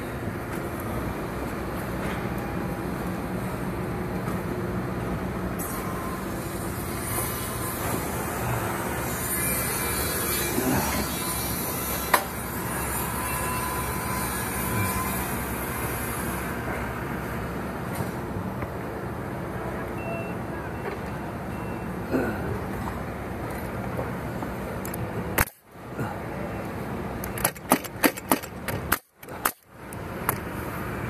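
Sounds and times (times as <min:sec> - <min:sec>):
construction machinery rumble: 0:00.0 - 0:31.0
traffic: 0:00.0 - 0:31.0
sharp click: 0:27.2 - 0:30.4.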